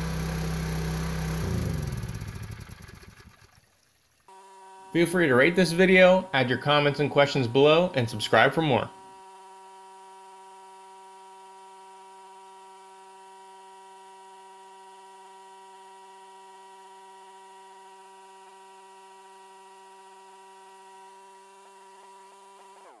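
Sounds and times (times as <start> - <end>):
small gasoline pump engine running: 0.0 - 23.0.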